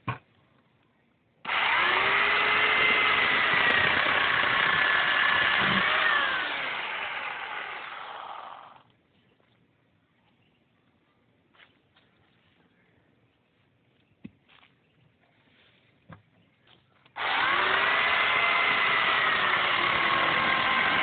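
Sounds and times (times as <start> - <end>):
electric chainsaw cutting branch: 1.5 - 8.8, 17.2 - 21.0.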